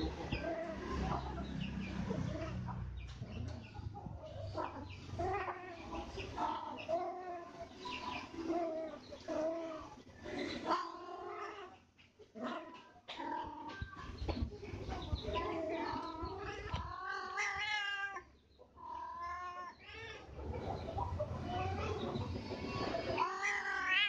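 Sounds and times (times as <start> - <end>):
cats yowling: 0.0 - 2.8, 4.3 - 11.8, 15.2 - 20.4, 22.6 - 24.0.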